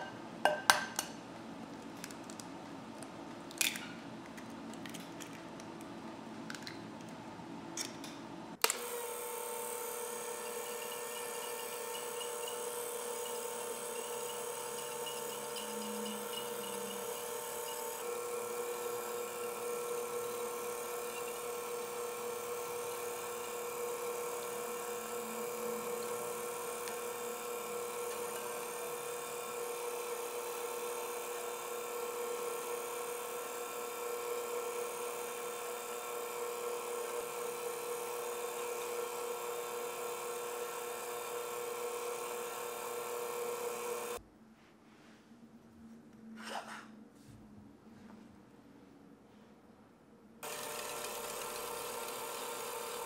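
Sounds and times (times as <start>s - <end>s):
electric whisk motor running: 8.6s - 44.2s, 50.4s - 53.0s.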